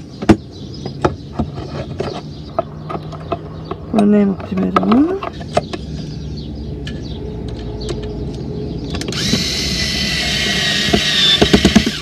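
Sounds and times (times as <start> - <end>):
electric drill driving screw: 9.1 - 12.0.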